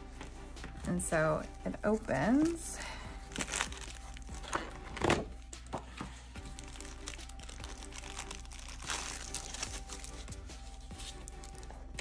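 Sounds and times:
quiet background music: 0.0 - 12.0
purse crinkling: 3.2 - 5.5, 6.4 - 12.0.

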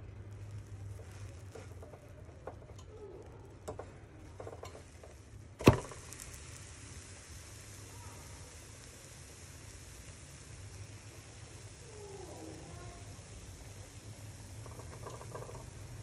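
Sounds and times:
faint batter sizzling: 0.0 - 16.0
pancake slapping into pan: 3.7 - 7.6
spatula scraping frying pan: 14.4 - 16.0.

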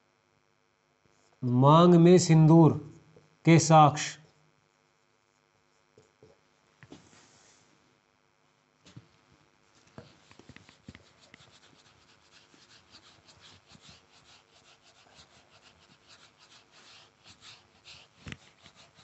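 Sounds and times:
duster rubbing on whiteboard: 9.9 - 19.0.

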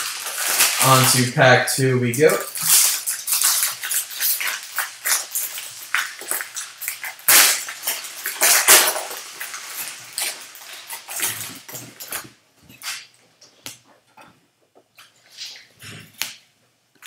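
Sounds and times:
foil wrapper tearing and crumpling: 0.0 - 13.1.

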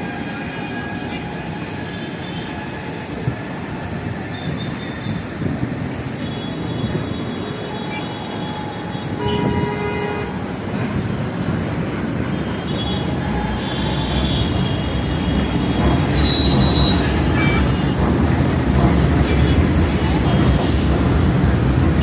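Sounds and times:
traffic noise: 0.0 - 22.0
train rumbling on elevated track: 0.0 - 22.0
train horn: 9.1 - 10.4.

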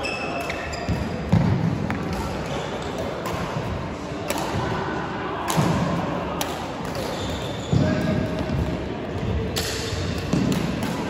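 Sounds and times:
racket striking shuttlecock: 9.6 - 11.0.

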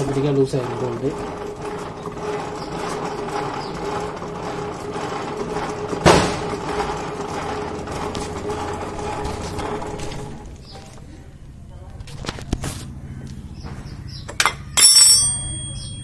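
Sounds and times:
loud metallic knock: 5.5 - 7.1.

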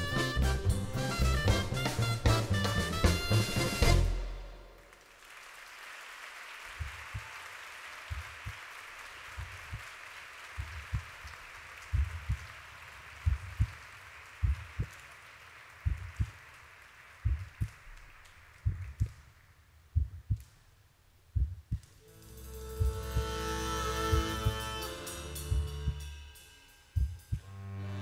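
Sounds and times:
audience applause: 4.8 - 19.5
heartbeat thumps: 6.8 - 7.3, 8.1 - 8.4, 10.6 - 11.3, 11.9 - 12.5, 13.2 - 13.8, 14.4 - 15.0, 15.8 - 16.4, 17.2 - 17.8, 18.6 - 19.2, 19.9 - 20.6, 21.3 - 22.0.

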